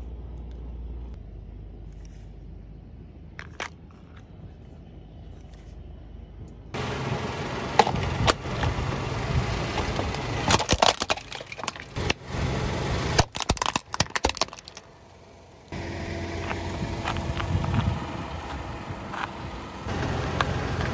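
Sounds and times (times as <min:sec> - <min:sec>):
car engine running low: 0:02.8 - 0:20.9
plastic toy cracking under tyre: 0:09.9 - 0:12.2, 0:13.2 - 0:14.9.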